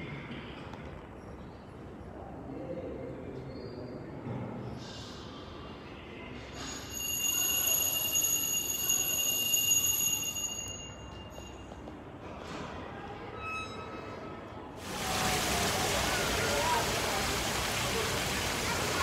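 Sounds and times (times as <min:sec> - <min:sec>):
metal bell ringing: 0:06.7 - 0:11.8.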